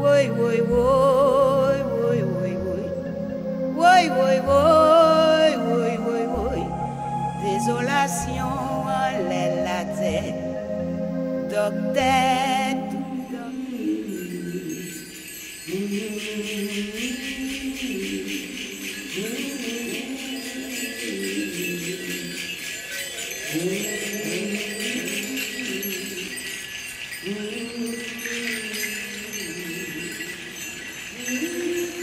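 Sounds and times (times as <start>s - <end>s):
slow low sliding melody: 0.0s - 14.0s
metallic jingling: 11.5s - 32.0s.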